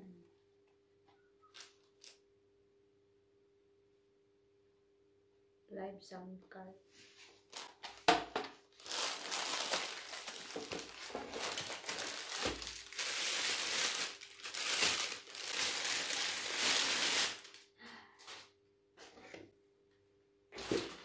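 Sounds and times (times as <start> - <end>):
plastic bag crinkling: 1.4 - 2.2, 7.4 - 18.5.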